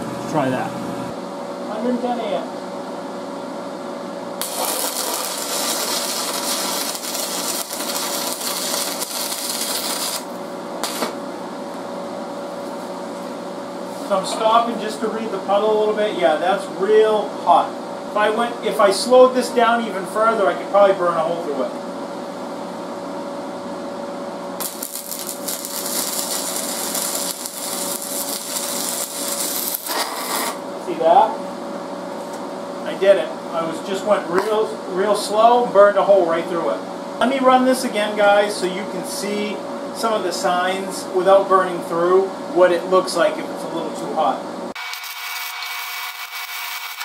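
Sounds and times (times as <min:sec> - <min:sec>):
welding arc sizzling: 0:04.4 - 0:11.2, 0:24.5 - 0:31.0, 0:44.7 - 0:47.0.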